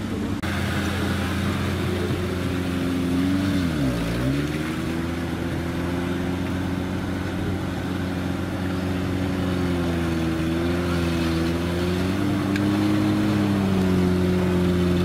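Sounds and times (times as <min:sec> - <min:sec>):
off-road vehicle engine running: 0:00.0 - 0:15.0.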